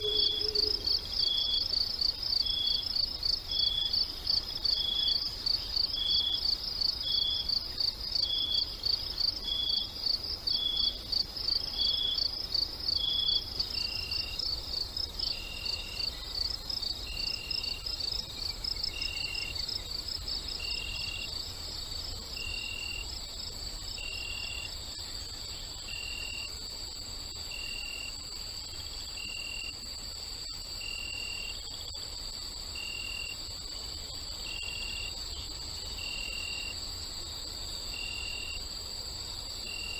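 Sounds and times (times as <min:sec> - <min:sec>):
insect calling short note: 0:00.0 - 0:01.0
crickets chirping: 0:00.0 - 0:39.9.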